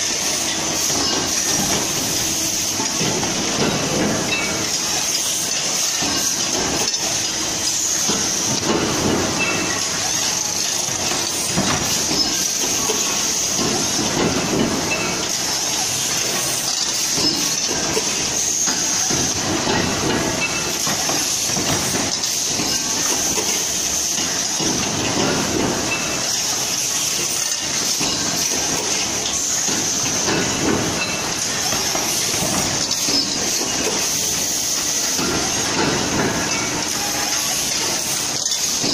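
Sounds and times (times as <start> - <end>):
metallic clattering and clanking: 0.0 - 38.9.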